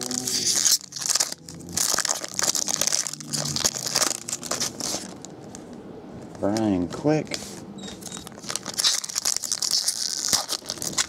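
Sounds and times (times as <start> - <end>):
foil wrapper crinkling: 0.0 - 5.4, 8.2 - 11.0.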